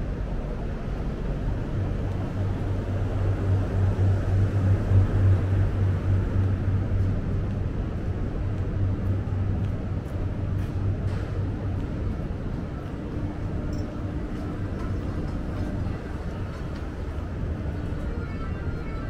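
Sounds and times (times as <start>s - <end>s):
city street traffic: 0.0s - 19.0s
vehicle engine rumble: 0.0s - 19.0s.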